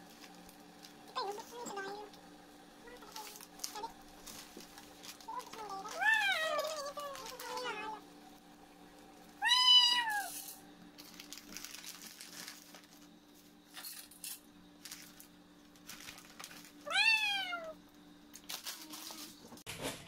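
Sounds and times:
cat meowing: 0:05.5 - 0:08.0, 0:09.4 - 0:10.4, 0:16.9 - 0:17.8.

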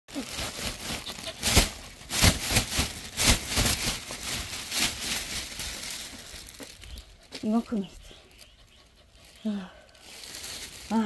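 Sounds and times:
plastic bag rustling: 0:00.1 - 0:11.0.

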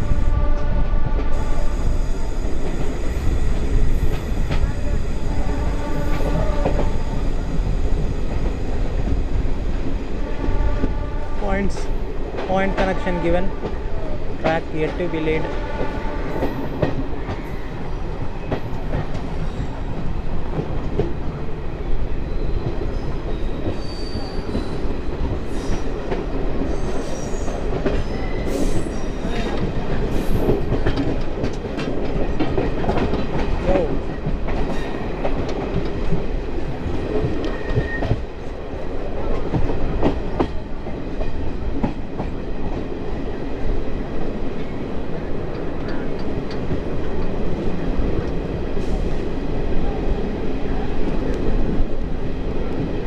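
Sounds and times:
train running noise: 0:00.0 - 0:53.0
wheel squeals: 0:22.3 - 0:24.8, 0:37.5 - 0:38.2.

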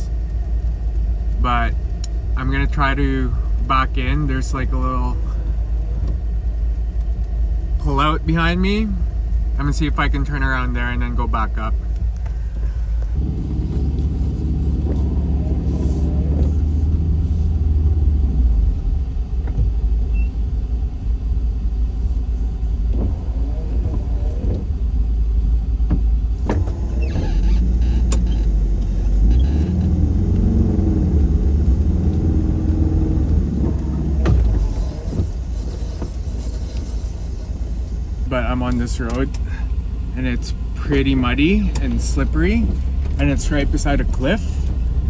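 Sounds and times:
van engine rumbling under load: 0:00.0 - 0:45.0
sharp knocks: 0:33.6 - 0:35.4.

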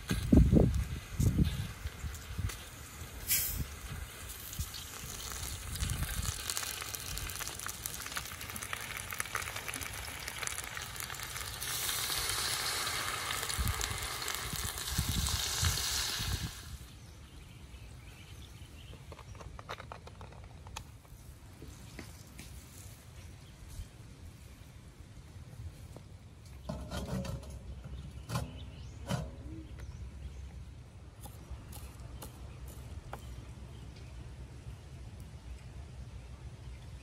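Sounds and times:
liquid sizzling in hot wok: 0:00.1 - 0:16.9.

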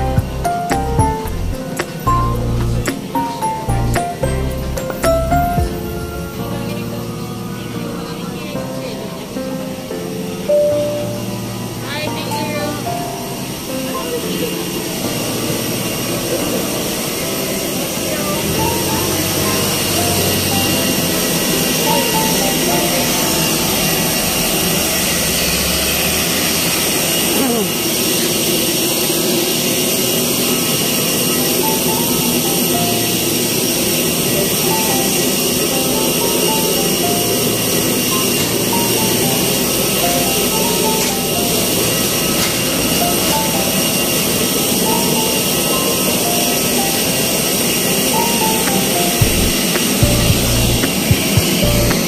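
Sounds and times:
jet turbine rushing: 0:00.0 - 0:52.0
high whining tones: 0:10.8 - 0:52.0.

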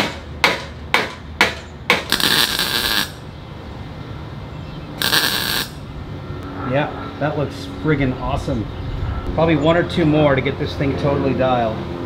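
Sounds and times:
welding crackle: 0:02.1 - 0:03.2, 0:05.0 - 0:05.9.

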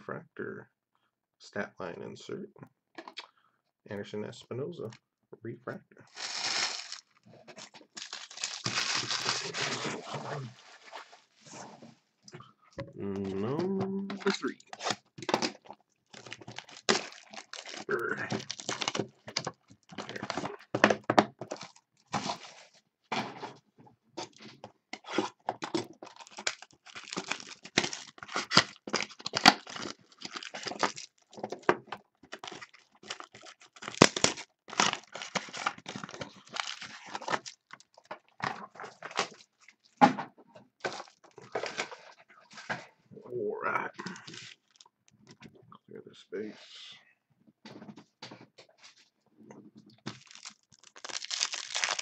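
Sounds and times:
wrappers ripping and crinkling: 0:06.1 - 0:11.3, 0:14.2 - 0:20.5, 0:21.5 - 0:22.7, 0:25.0 - 0:31.7, 0:32.3 - 0:38.2, 0:40.9 - 0:42.0, 0:44.1 - 0:44.9, 0:50.1 - 0:52.0.

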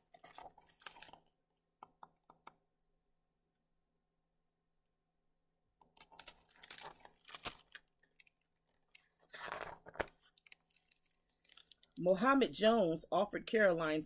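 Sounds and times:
book pages rustling: 0:00.0 - 0:01.4, 0:05.8 - 0:12.0.

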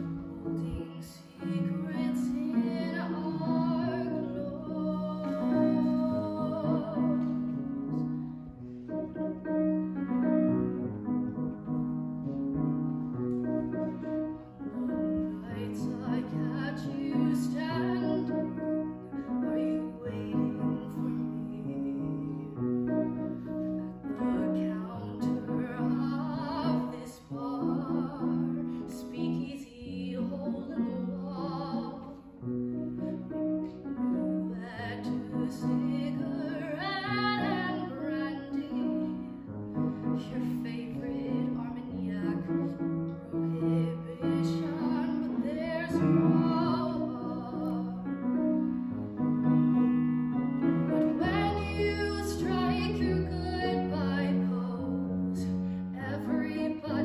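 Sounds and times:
woman singing with vibrato: 0:00.0 - 0:07.6, 0:40.2 - 0:42.7, 0:43.4 - 0:48.0, 0:51.2 - 0:57.0
piano chords: 0:00.0 - 0:57.0.

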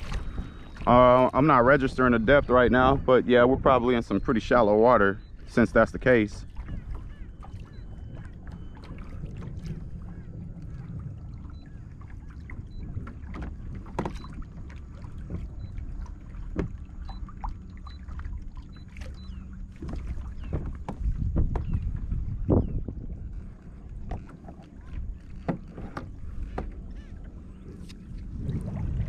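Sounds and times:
water lapping at hull: 0:00.0 - 0:29.0
wind rumble on microphone: 0:00.0 - 0:29.0
small knocks: 0:19.8 - 0:21.9, 0:25.3 - 0:26.8.

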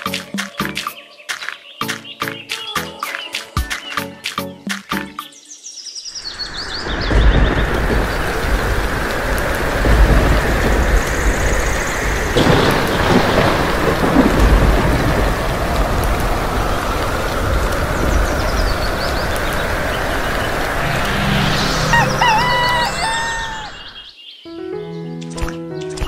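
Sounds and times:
thunder rumbling: 0:06.2 - 0:24.0
heavy rain pouring: 0:06.2 - 0:24.1.

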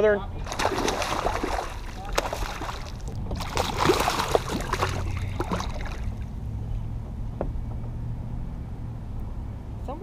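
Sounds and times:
fish splashing in water: 0:00.4 - 0:06.4.

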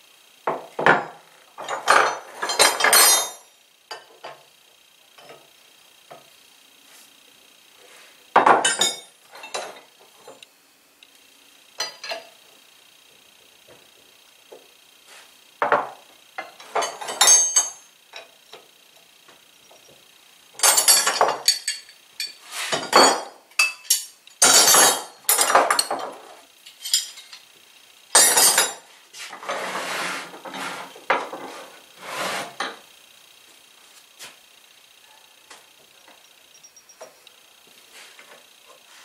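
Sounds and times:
metal tools clanking on workbench: 0:00.8 - 0:04.4, 0:08.4 - 0:10.4, 0:16.4 - 0:18.3, 0:20.6 - 0:27.4.

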